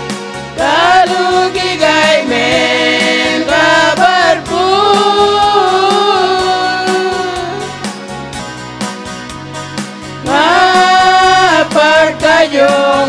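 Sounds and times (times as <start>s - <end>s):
steady accompaniment beat: 0.0s - 13.0s
women singing together: 0.6s - 7.7s, 10.2s - 13.0s.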